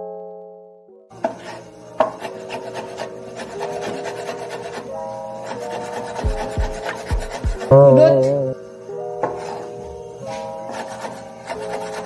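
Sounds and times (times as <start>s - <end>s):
soft background music: 0.0s - 12.0s
heavy low thumps: 6.3s - 8.1s.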